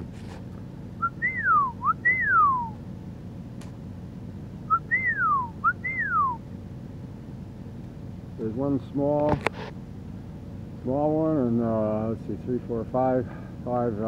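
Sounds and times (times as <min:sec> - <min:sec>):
person whistling a call: 0:01.0 - 0:02.8, 0:04.7 - 0:06.4
short whistled pip: 0:01.0 - 0:02.8, 0:04.7 - 0:06.4.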